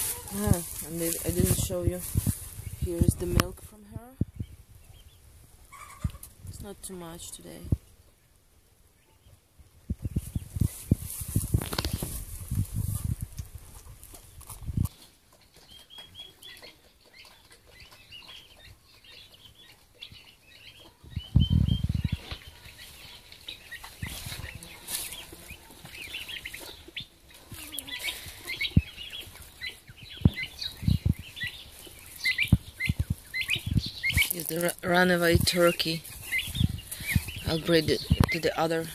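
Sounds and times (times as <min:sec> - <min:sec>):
muffled rustling: 0:00.0 - 0:03.7, 0:09.9 - 0:15.0
small birds peeping and chirping: 0:00.0 - 0:38.9.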